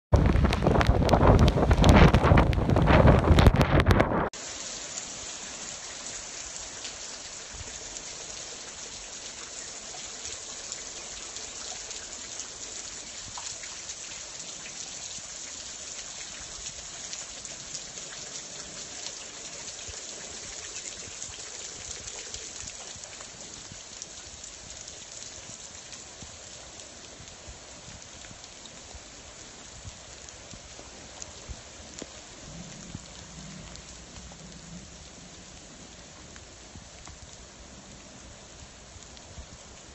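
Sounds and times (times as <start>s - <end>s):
heavy rain on trees and roof: 0.0s - 39.9s
close raindrop hits: 0.1s - 39.9s.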